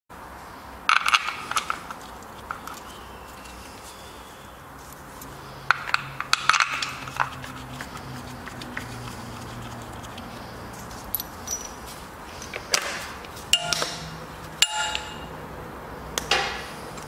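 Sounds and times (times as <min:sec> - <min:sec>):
metal tools clinking and rattling: 0:10.8 - 0:12.6, 0:13.5 - 0:15.3.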